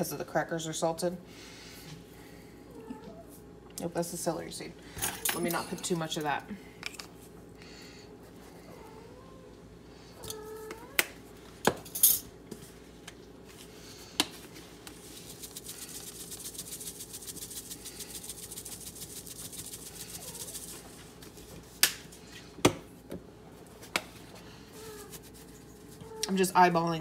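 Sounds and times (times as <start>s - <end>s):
spice bottle shaking rattle: 15.0s - 21.0s.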